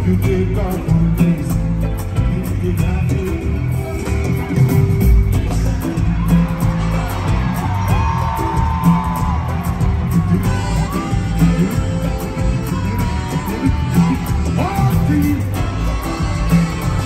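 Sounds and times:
person singing: 0.0s - 6.8s, 10.2s - 17.0s
heavy bass beat: 0.0s - 17.0s.

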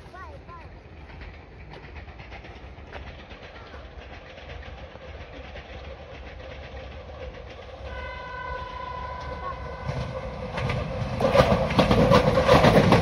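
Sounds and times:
electric train running noise: 0.0s - 13.0s
train motor whine: 7.4s - 13.0s
train horn chord: 7.9s - 10.2s.

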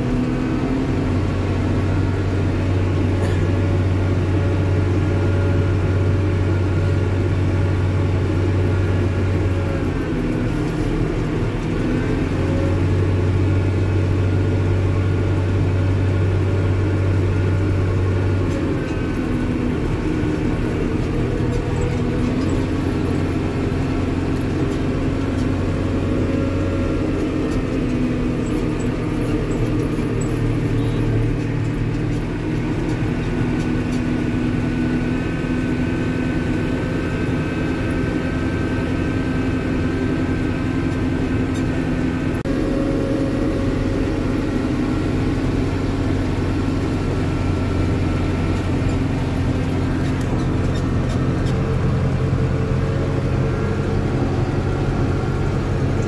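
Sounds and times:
loader engine humming: 0.0s - 56.0s.

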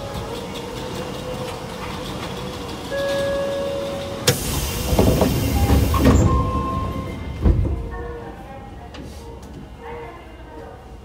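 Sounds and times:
sliding doors thudding shut: 4.2s - 8.0s
loud hiss: 4.3s - 6.3s
electronic door tone: 5.4s - 7.4s.

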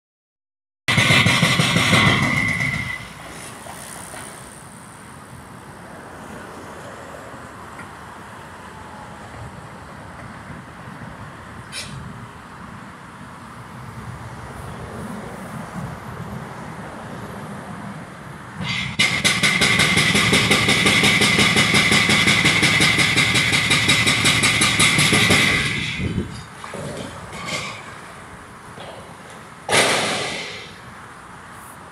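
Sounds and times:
hydraulic breaker hammering concrete: 0.9s - 3.2s, 18.6s - 27.9s, 29.7s - 30.8s.

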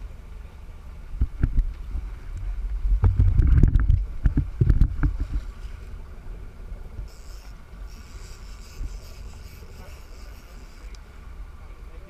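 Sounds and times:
wind buffeting microphone: 0.0s - 8.0s
faint high whir: 6.9s - 12.0s.

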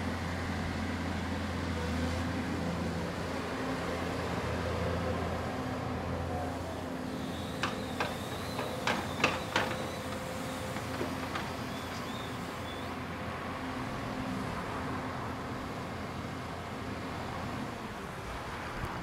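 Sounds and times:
excavator diesel engine running: 4.3s - 13.4s
grab knocking and clattering: 7.6s - 11.7s.

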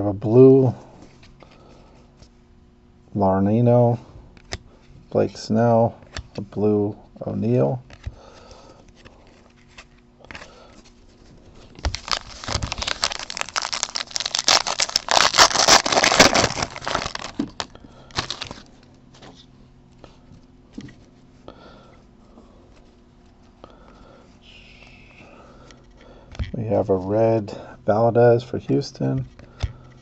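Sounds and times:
foil wrapper tearing and crinkling: 11.8s - 18.7s.

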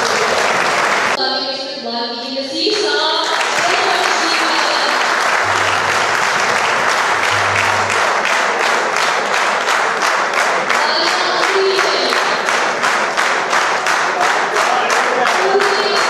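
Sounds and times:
audience applauding: 0.0s - 1.2s, 3.2s - 16.0s
voice on microphone: 1.2s - 8.2s, 10.8s - 12.4s, 15.4s - 16.0s.

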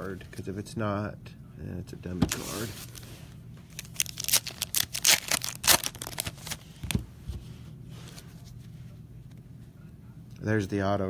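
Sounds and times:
foil wrapper tearing and crumpling: 3.7s - 6.6s.

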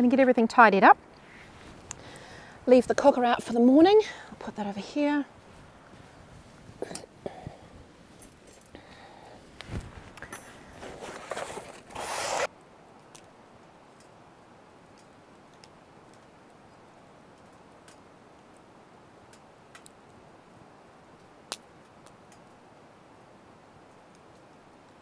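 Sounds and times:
camping gear rustling and clattering: 1.2s - 2.2s, 5.3s - 12.5s.

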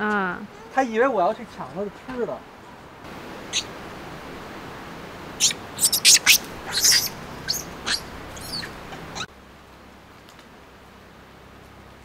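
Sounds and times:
outdoor hiss: 0.0s - 12.0s
bird chirping: 3.4s - 3.8s, 5.4s - 9.3s.

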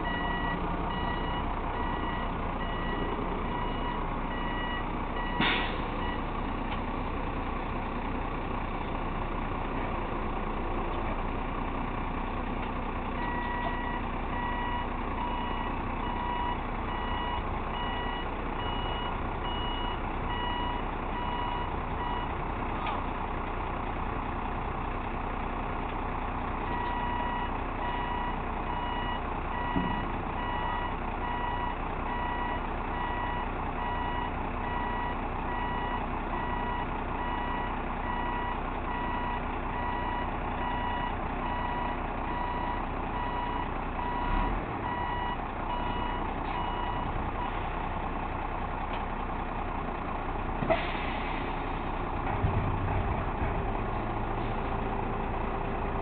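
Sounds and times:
truck reverse warning beeper: 0.0s - 6.4s, 12.8s - 22.4s, 26.6s - 47.7s
truck engine running: 0.0s - 56.0s.

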